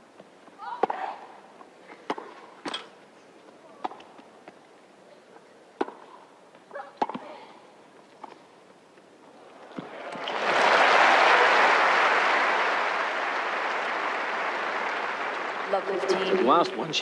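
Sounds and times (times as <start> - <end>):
tennis ball bouncing: 2.0 - 2.8, 5.8 - 6.2, 6.9 - 7.3
racket hitting tennis ball: 2.0 - 2.9, 5.8 - 6.1.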